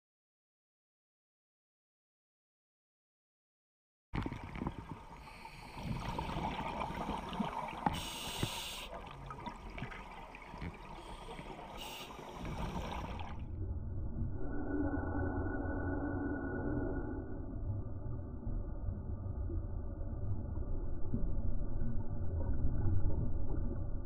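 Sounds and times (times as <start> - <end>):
exhaust bubble bursts: 4.2 - 13.4
low steady hum: 4.2 - 24.0
water rumble: 4.2 - 24.0
regulator breathing underwater: 5.1 - 9.3, 10.6 - 13.4.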